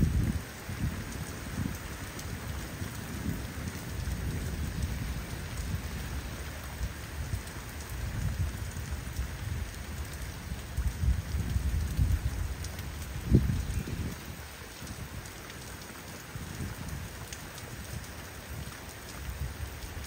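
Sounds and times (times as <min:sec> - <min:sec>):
steady rain: 0:00.0 - 0:20.0.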